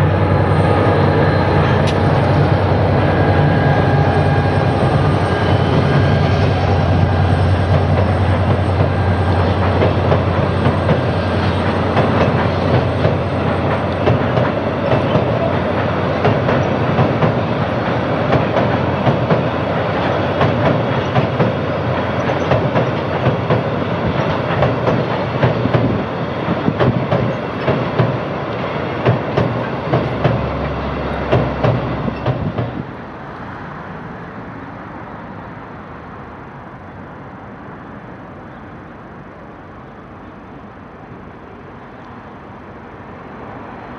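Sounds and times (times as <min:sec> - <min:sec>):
wheels clickety-clack over rail joints: 0:00.0 - 0:34.4
train rumbling over bridge: 0:00.0 - 0:43.9.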